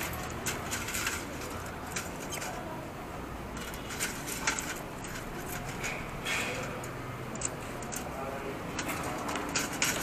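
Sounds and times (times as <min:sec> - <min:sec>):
metal tongs clinking cutlery in pot: 0:03.6 - 0:10.0.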